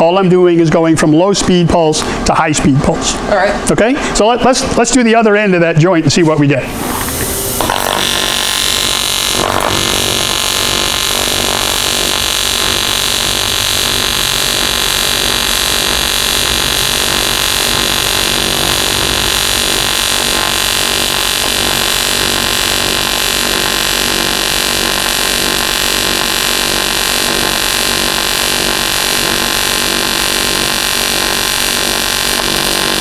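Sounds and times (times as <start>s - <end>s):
welding arc buzzing: 6.7s - 33.0s.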